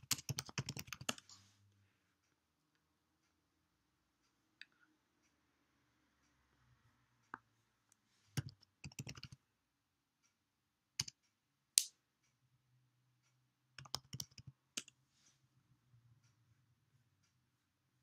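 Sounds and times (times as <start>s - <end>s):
keyboard typing: 0.0s - 1.4s, 8.4s - 9.4s, 11.0s - 11.2s, 13.8s - 15.0s.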